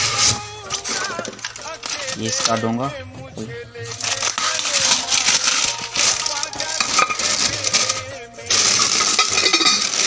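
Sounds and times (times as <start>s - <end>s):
plastic wrapping rustling: 0.0s - 2.9s, 3.9s - 10.0s
porcelain clinking: 3.9s - 10.0s.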